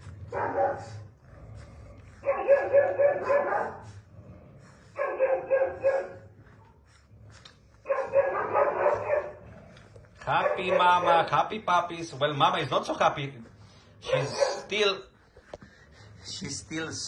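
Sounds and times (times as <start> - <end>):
dog barking: 0.3 - 1.0, 2.2 - 3.9, 5.0 - 6.2, 7.8 - 9.4, 10.2 - 11.2, 14.0 - 14.8.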